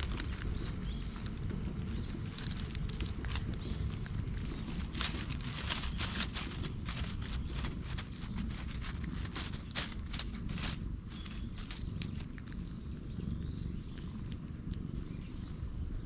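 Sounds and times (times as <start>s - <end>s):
dry leaves crackling and rustling: 0.0s - 12.7s
steady low rumble: 0.0s - 16.0s
hand scratching cat: 4.5s - 12.3s.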